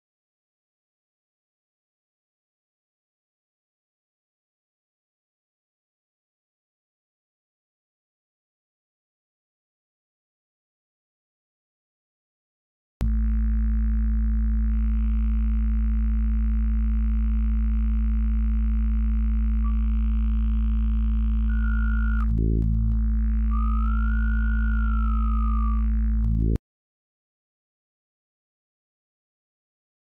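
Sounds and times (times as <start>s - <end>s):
synthesizer bass drone: 13.0s - 26.6s.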